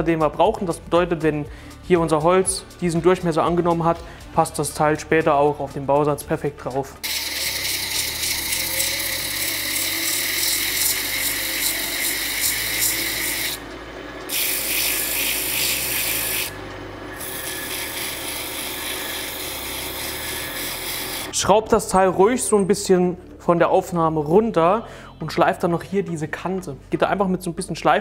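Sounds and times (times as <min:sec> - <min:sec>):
wood lathe running hum: 0:07.0 - 0:21.4.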